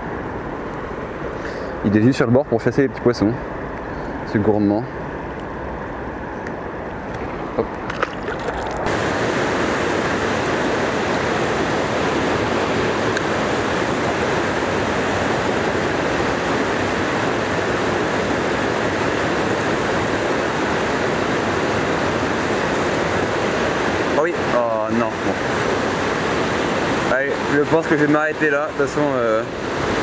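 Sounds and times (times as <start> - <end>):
water rushing over weir: 7.1 - 30.0.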